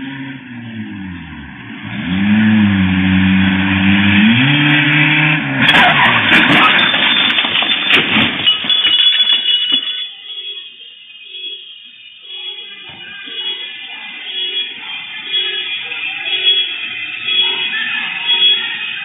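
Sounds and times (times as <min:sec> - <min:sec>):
car engine revving: 0:00.0 - 0:06.7
car crash impacts: 0:05.6 - 0:10.0.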